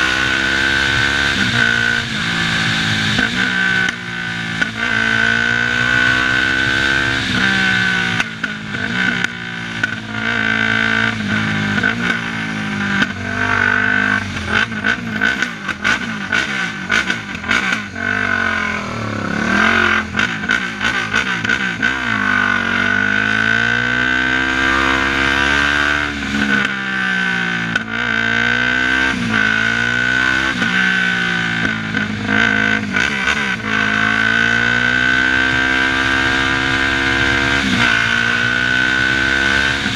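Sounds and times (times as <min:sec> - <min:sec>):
quad engine accelerating: 0:00.0 - 0:39.9
rushing noise: 0:17.6 - 0:23.6.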